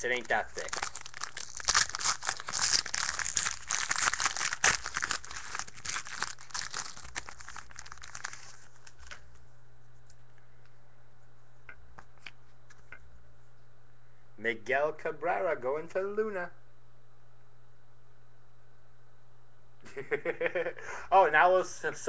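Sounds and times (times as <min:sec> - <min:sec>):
wrapper crinkling and tearing: 0:00.0 - 0:09.3.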